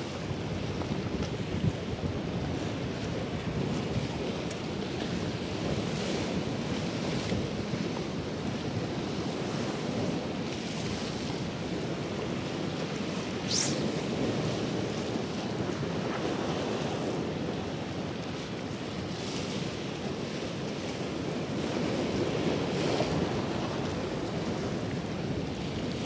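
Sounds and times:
sea waves breaking and washing: 0:00.0 - 0:26.0
wind rumbling on microphone: 0:00.0 - 0:26.0
short high hiss: 0:13.4 - 0:14.0.

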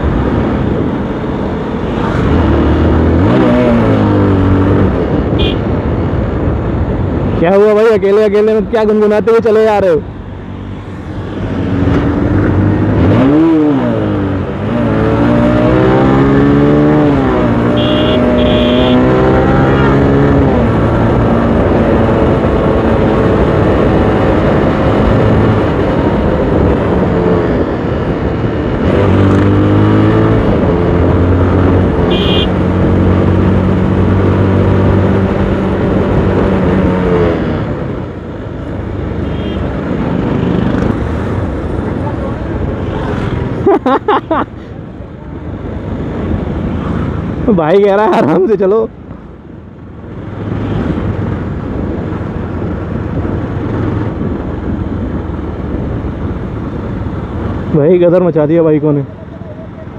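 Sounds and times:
steady rushing noise: 0:00.0 - 0:59.2
motorcycle engine revving: 0:10.5 - 0:43.8.

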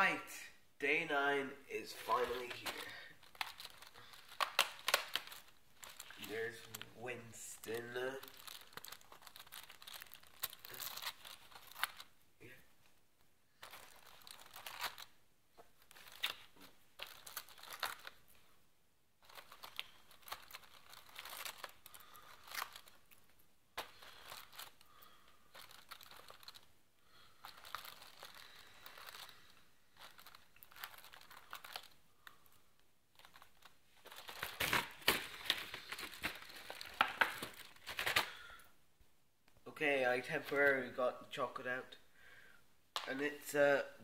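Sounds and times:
cardboard tearing and crinkling: 0:34.1 - 0:38.4.

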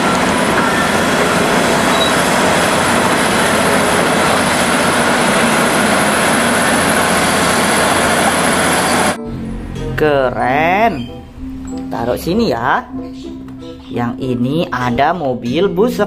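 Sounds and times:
bulldozer diesel engine: 0:00.0 - 0:10.1.

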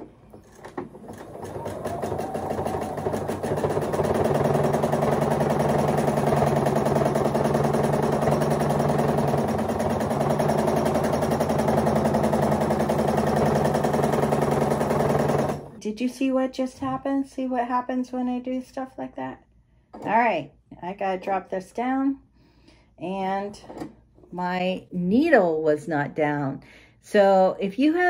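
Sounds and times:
sewing machine stitching: 0:00.0 - 0:15.8.

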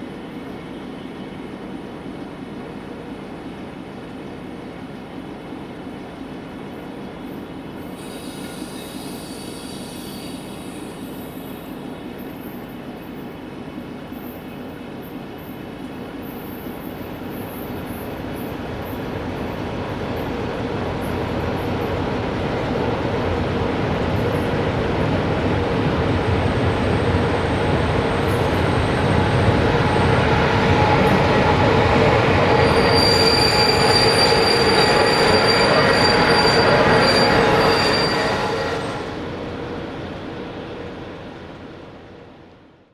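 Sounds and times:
train wheels rumbling on rails: 0:00.0 - 0:42.8
high steady squeal: 0:28.1 - 0:39.4.

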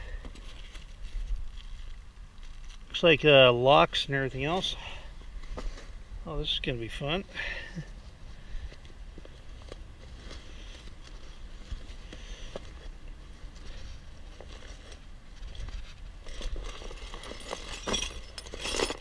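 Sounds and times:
nylon bag rustling on cardboard: 0:08.8 - 0:19.0.

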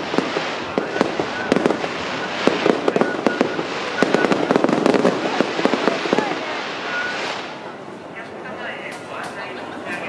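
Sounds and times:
firework shells bursting: 0:00.0 - 0:07.8
firework crackles: 0:00.0 - 0:10.0.

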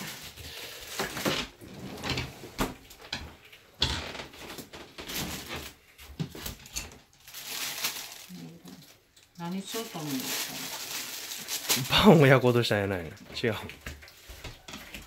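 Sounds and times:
kitchen knocks and clatters: 0:01.0 - 0:07.1.

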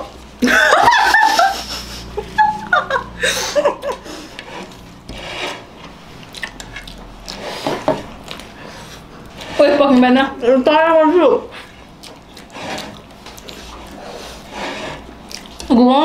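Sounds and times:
girls giggling: 0:00.4 - 0:04.3
biting and chewing: 0:05.8 - 0:09.5, 0:11.8 - 0:14.5, 0:15.1 - 0:15.7.

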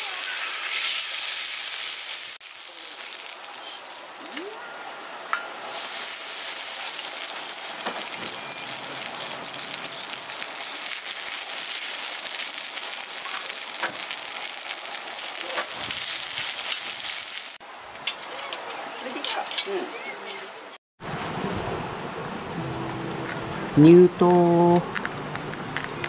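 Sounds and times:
oil sizzling in skillet: 0:00.0 - 0:04.3, 0:05.5 - 0:17.6.

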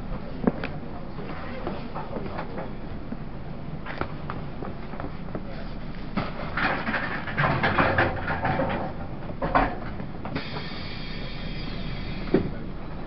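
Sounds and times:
high steady whine: 0:09.4 - 0:13.0.

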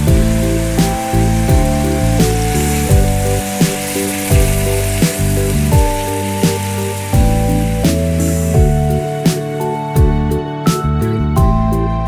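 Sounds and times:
pork sizzling: 0:00.0 - 0:10.1
music with steady beat: 0:00.0 - 0:12.0.

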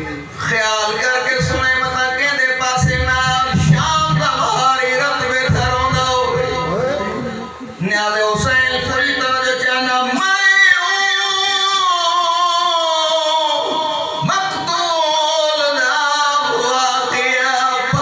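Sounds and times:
man chanting unaccompanied: 0:00.0 - 0:18.0.

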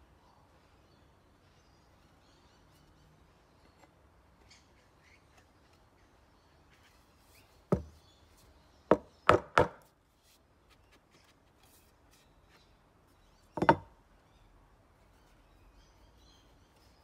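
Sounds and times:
axe knocking on wooden bench: 0:07.7 - 0:08.0, 0:08.9 - 0:09.8, 0:13.6 - 0:13.9.

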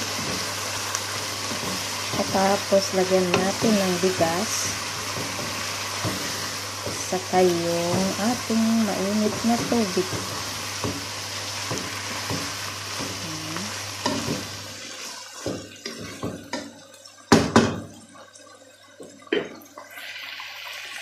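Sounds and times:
chicken sizzling in a pot: 0:00.0 - 0:21.0
wooden spoon knocking on pot: 0:03.2 - 0:07.1, 0:09.2 - 0:13.2.

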